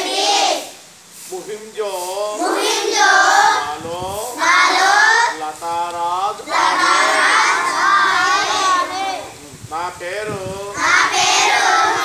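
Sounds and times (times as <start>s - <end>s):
children reciting in chorus: 0.0s - 0.8s, 2.3s - 9.4s, 10.6s - 12.0s.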